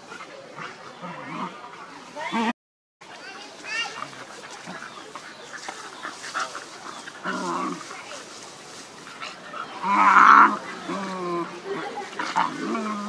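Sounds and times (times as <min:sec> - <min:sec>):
dogs growling and yipping: 0:00.1 - 0:02.5, 0:04.6 - 0:08.2, 0:09.0 - 0:13.0
dogs scuffling in grass: 0:03.2 - 0:13.0.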